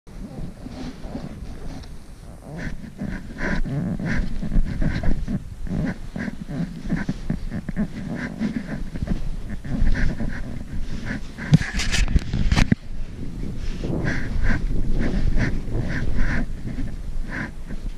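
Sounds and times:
wind rumble on microphone: 0.1s - 17.9s
loud scrape: 0.3s - 12.8s.

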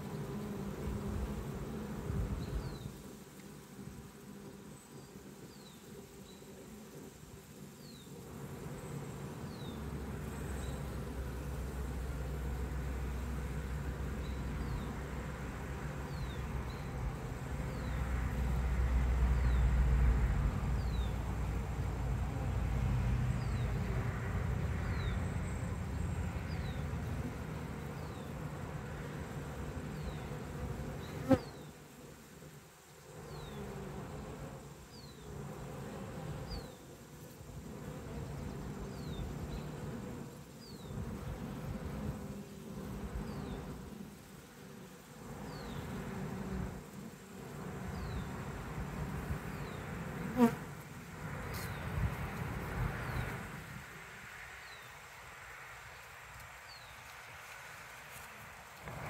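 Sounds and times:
bees buzzing: 0.0s - 59.0s.

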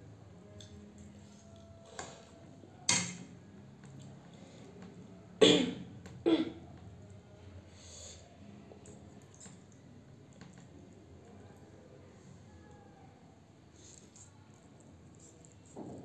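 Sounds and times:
person coughing: 5.4s - 6.6s.

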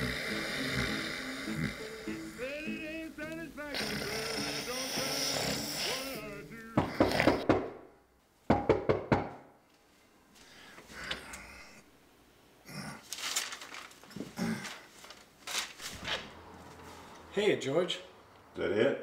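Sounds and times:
knocking on a door: 6.8s - 7.8s, 8.5s - 9.4s.

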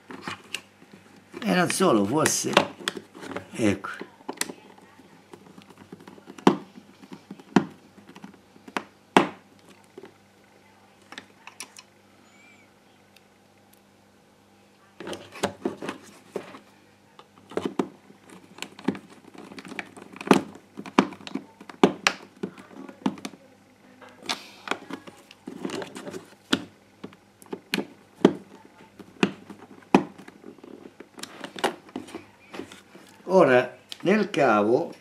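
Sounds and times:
plastic parts clicking and knocking: 0.0s - 10.1s, 17.2s - 23.4s, 24.7s - 32.8s.

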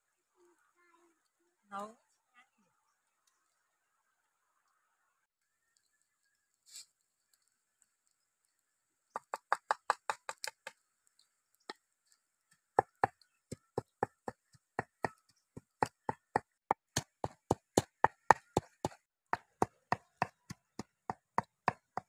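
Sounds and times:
pestle pounding in a mortar: 12.8s - 22.0s.

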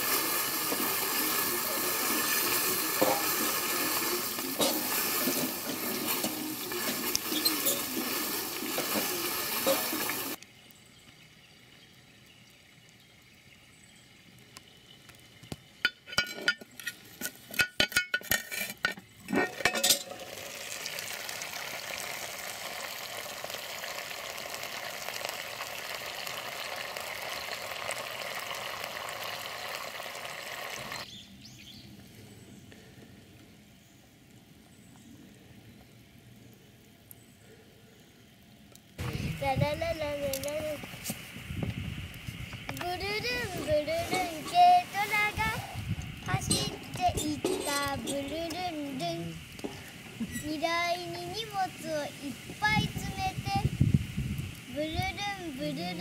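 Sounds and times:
chicken sizzling in pot: 0.0s - 10.4s, 14.6s - 31.2s, 39.0s - 56.0s
metallic clinks of pot and lid: 15.9s - 20.3s.

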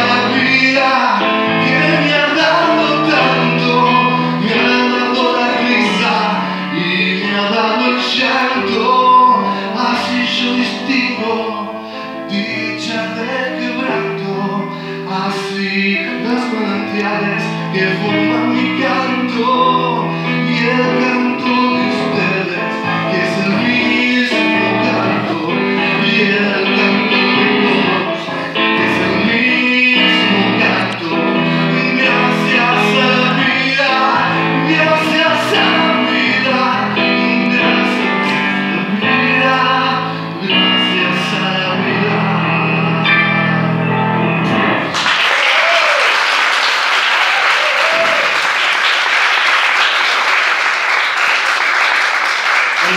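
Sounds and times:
man singing: 0.0s - 44.9s
electric keyboard: 0.0s - 45.8s
audience applause: 44.9s - 52.9s.

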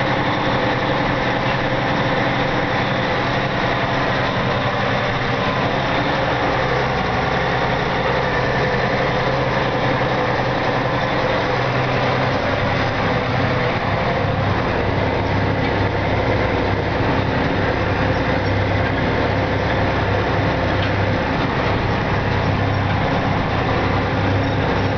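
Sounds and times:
tractor engine running under load: 0.0s - 24.9s.

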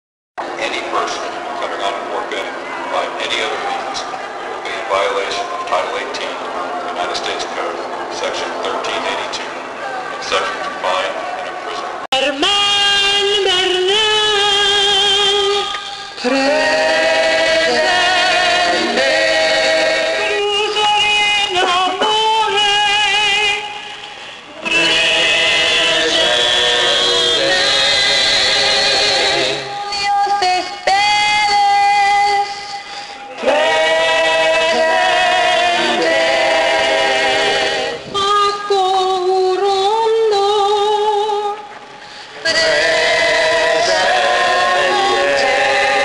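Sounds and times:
voices singing held notes: 12.2s - 41.4s, 42.3s - 46.0s.

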